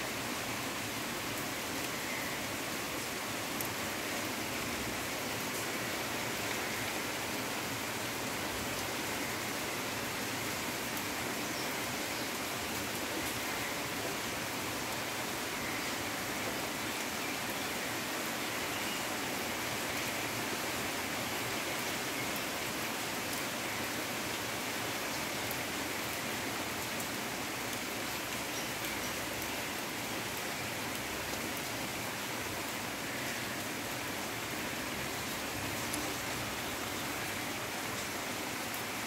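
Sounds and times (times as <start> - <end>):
heavy rain on foliage: 0.0 - 39.0.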